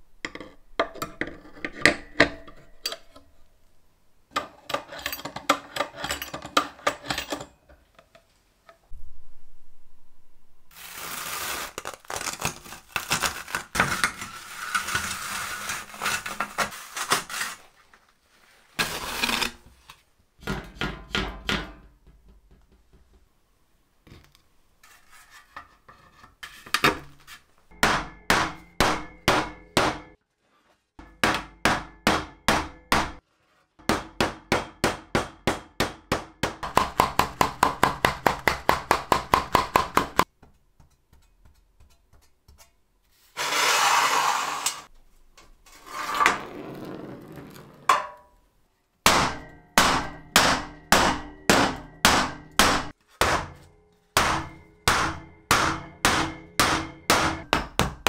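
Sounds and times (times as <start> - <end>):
scraping noises: 13.7 - 20.1, 24.8 - 27.6, 42.6 - 44.9, 45.6 - 47.9.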